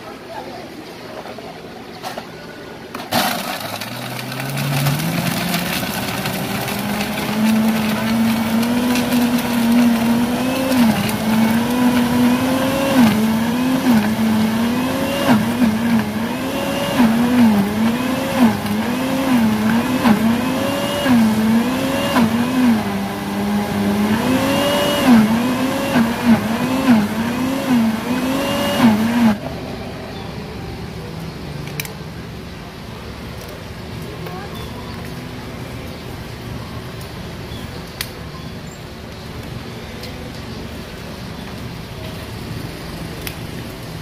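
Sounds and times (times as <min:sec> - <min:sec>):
blender motor running: 0:03.7 - 0:29.4.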